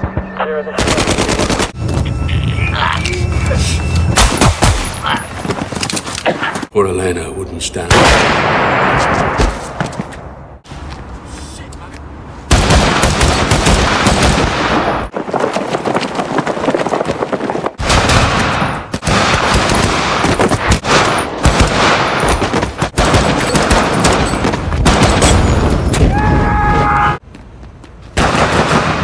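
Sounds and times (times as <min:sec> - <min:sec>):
rapid rifle fire: 0:00.8 - 0:01.7, 0:17.8 - 0:25.2, 0:28.2 - 0:29.0.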